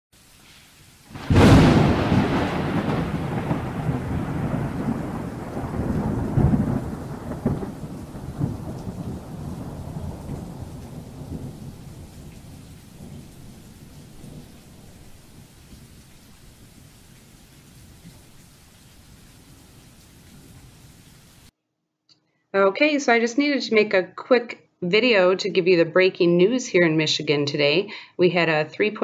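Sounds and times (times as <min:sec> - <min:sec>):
steady rain: 0:00.1 - 0:21.5
thunder rumbling: 0:01.1 - 0:21.5.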